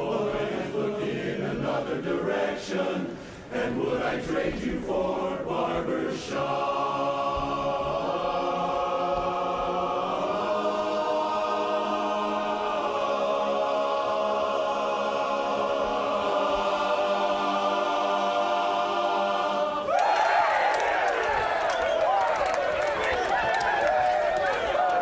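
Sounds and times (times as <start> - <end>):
men's chorus singing a cappella: 0.0 - 19.9.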